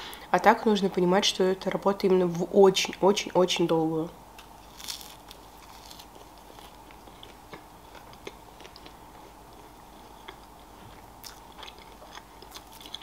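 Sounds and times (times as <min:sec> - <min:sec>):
pastry chewing crunches: 0:04.4 - 0:13.0.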